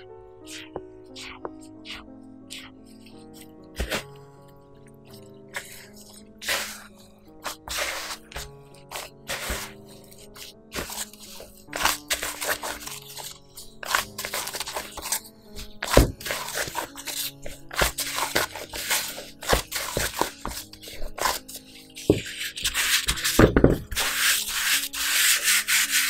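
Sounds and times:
background music: 0.0 - 26.0
dough kneaded in plastic bowl: 3.0 - 4.5, 5.6 - 26.0.

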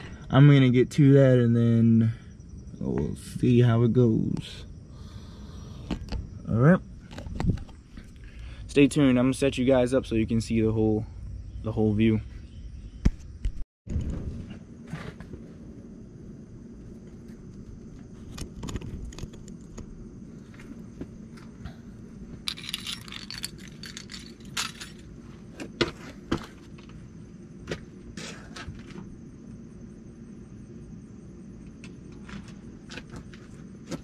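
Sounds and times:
metal tools clinking: 22.5 - 25.2.

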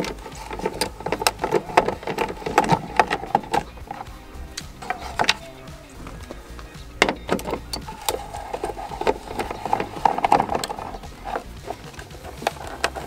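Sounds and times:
background music: 0.0 - 13.0
socket ratchet clicking: 7.0 - 13.0.

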